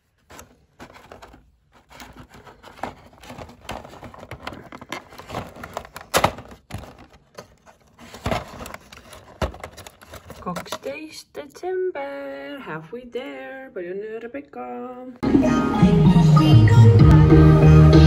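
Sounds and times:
card crinkling and scraping: 0.0s - 10.9s.

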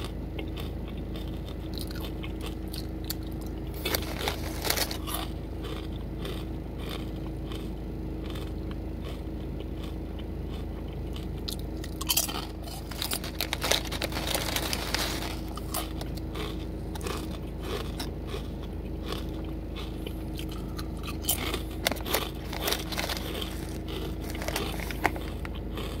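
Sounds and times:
potato chips crunching: 0.0s - 26.0s
foil chip bag crinkling: 1.7s - 5.9s, 11.5s - 18.5s, 19.1s - 26.0s.

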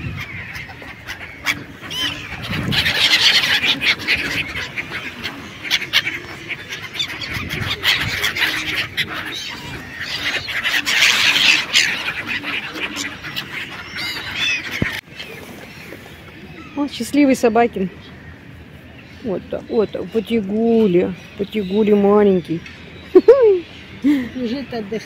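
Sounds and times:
gulls calling: 0.0s - 25.0s.

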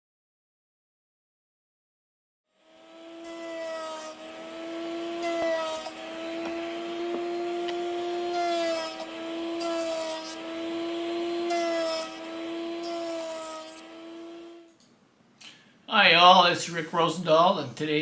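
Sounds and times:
router bit cutting wood: 2.5s - 14.8s
wood router motor spinning: 2.5s - 14.8s.

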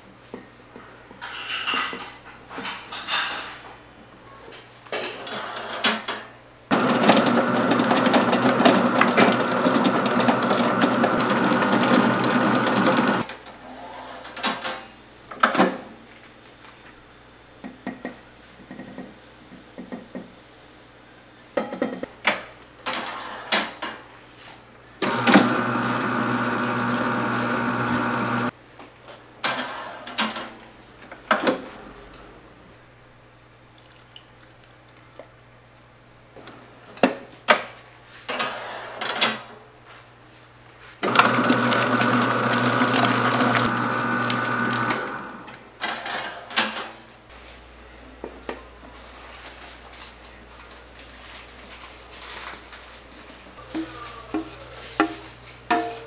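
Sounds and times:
stand mixer motor running: 6.7s - 13.2s, 25.0s - 28.5s, 41.0s - 45.5s.

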